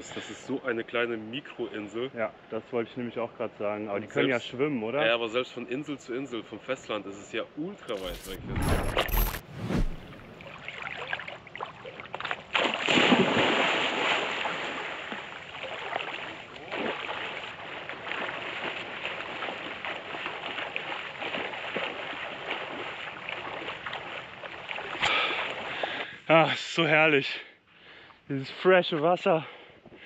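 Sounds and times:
water splashing and rushing: 7.9s - 25.8s.

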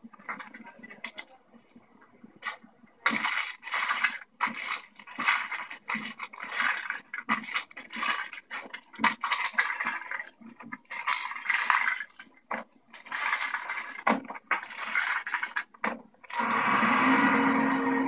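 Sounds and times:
pill bottles rattling: 2.4s - 16.4s.

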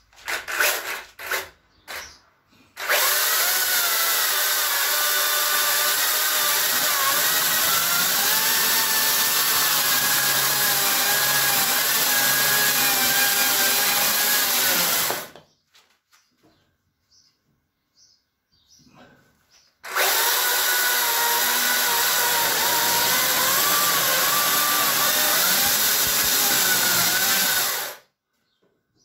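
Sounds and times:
electric chainsaw cutting wood: 2.8s - 15.3s, 19.9s - 28.1s.

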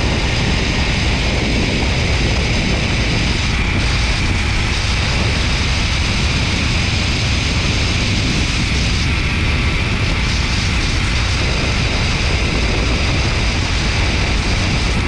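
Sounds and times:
wind buffeting microphone: 0.0s - 15.0s
zipline trolley running on cable: 0.0s - 15.0s.

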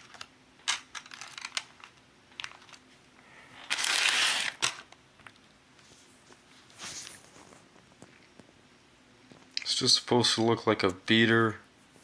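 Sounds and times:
plastic crinkling rustle: 3.6s - 5.4s.

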